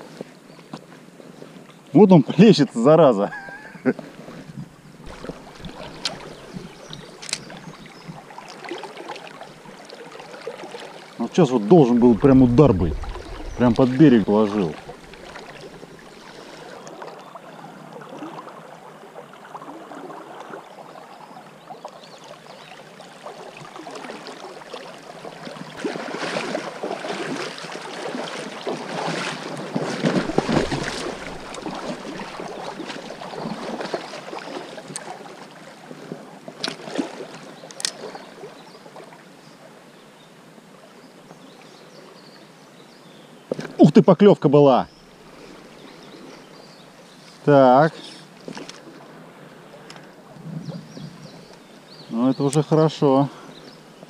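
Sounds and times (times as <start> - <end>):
river water rushing: 5.0 - 19.0, 23.8 - 35.9.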